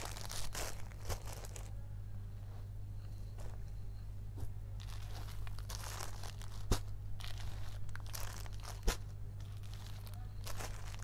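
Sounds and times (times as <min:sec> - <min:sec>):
fabric rustling and crinkling: 0:00.0 - 0:01.8, 0:04.4 - 0:11.0
low hum: 0:00.0 - 0:11.0.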